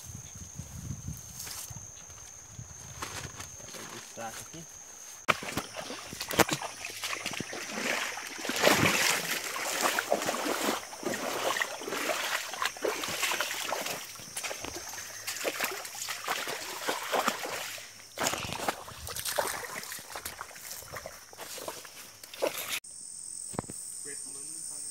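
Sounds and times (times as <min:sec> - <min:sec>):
boots splashing through muddy water: 0:05.3 - 0:22.8.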